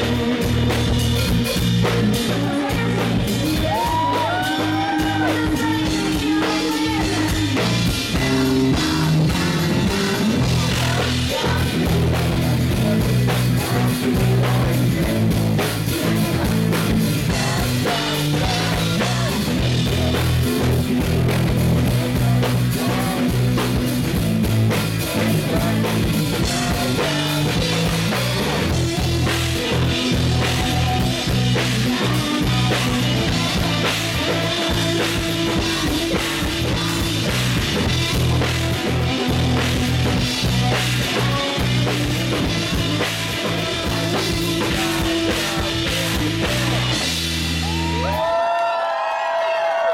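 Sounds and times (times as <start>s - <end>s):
live pop-rock band: 0.0s - 49.9s
woman singing into microphone: 2.0s - 20.4s, 28.6s - 47.0s.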